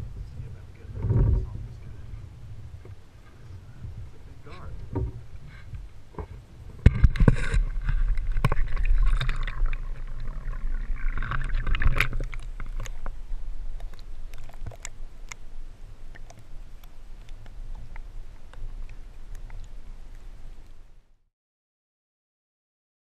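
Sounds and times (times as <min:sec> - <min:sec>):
muffled underwater sound: 0:00.0 - 0:20.7
water splashing and sloshing: 0:00.2 - 0:21.0
small underwater clicks: 0:05.6 - 0:20.8.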